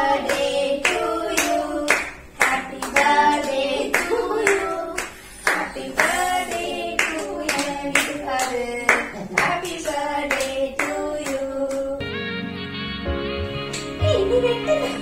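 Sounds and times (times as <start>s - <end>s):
people singing together: 0.0s - 12.1s
people clapping in time: 0.2s - 3.2s
background music: 12.0s - 15.0s.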